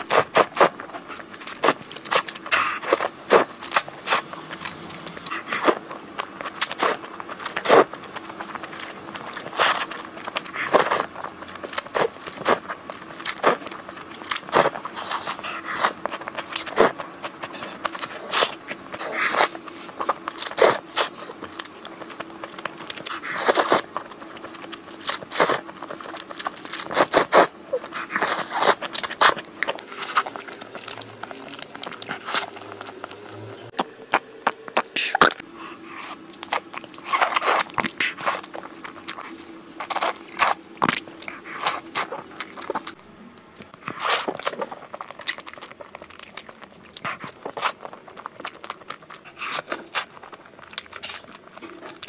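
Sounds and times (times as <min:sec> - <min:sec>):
faint steady hum: 0:00.0 - 0:52.0
wet chewing: 0:00.0 - 0:52.0
slurping noodles: 0:06.6 - 0:07.9, 0:23.0 - 0:24.0, 0:25.0 - 0:26.0, 0:26.7 - 0:33.4.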